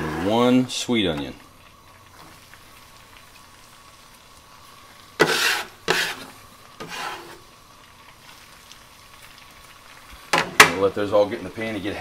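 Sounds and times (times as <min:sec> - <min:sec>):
scraper scraping a wooden board: 0:05.2 - 0:07.4.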